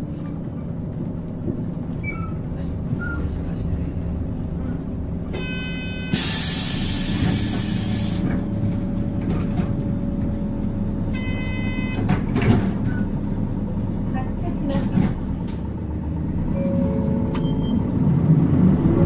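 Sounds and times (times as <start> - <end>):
diesel bus engine idling: 0.0 - 19.0
compressed air hiss: 6.2 - 8.2.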